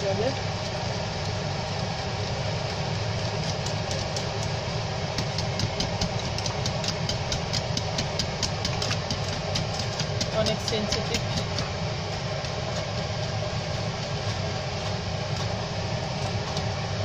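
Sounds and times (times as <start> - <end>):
low hum: 0.0 - 17.0
wire whisk clicking against pot: 5.2 - 11.7.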